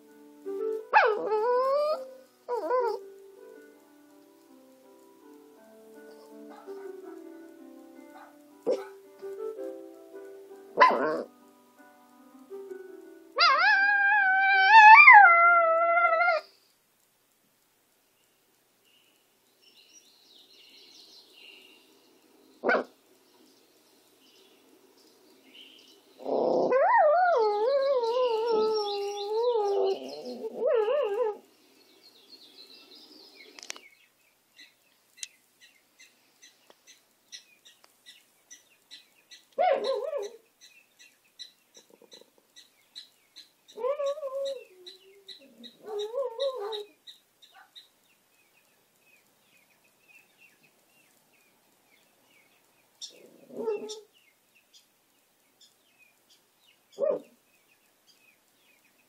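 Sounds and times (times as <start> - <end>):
faint bird chirping: 4.4 - 9.4, 18.0 - 26.8, 27.4 - 59.0
dog howling: 13.4 - 16.4, 26.2 - 31.4, 43.8 - 47.0, 53.1 - 54.1.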